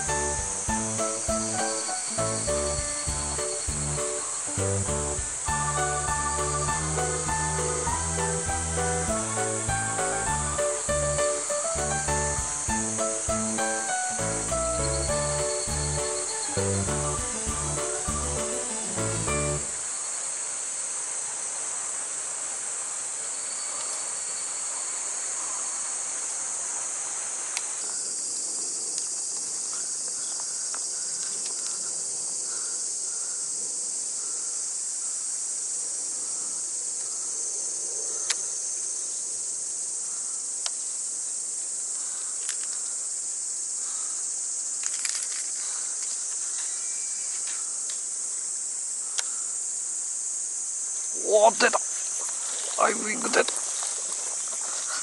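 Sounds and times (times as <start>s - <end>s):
cicadas droning: 0.0s - 55.0s
faint ticks: 38.2s - 38.5s, 40.6s - 40.8s, 42.4s - 43.0s, 49.1s - 49.4s.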